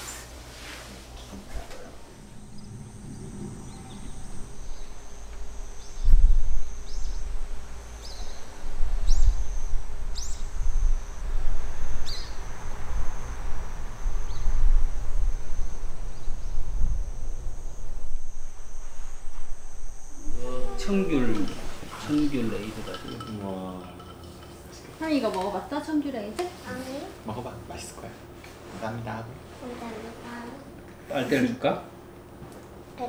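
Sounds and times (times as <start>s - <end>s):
insects droning: 0.0s - 33.0s
irregular low rumble: 1.0s - 23.4s.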